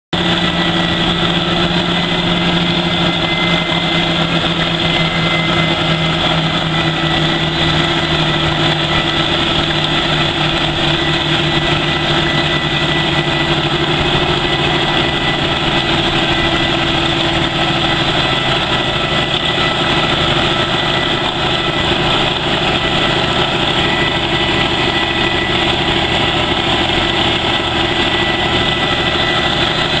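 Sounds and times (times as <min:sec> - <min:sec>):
harvester engine and chains droning: 0:00.1 - 0:30.0.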